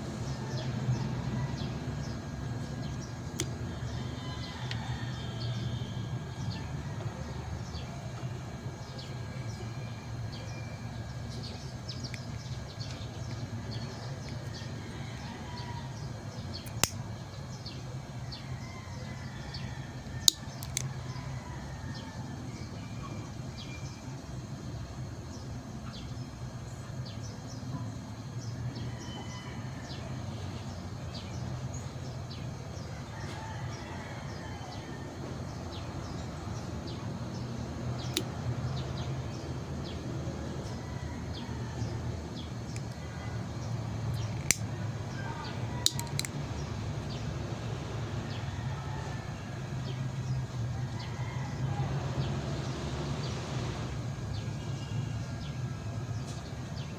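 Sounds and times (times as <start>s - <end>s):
steady low hum: 0.0s - 56.9s
sharp clicks: 16.6s - 17.0s, 44.1s - 44.7s, 45.8s - 46.4s.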